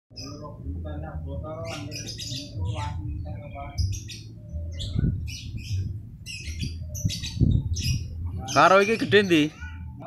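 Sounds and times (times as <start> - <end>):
small birds chirping: 0.1 - 10.0.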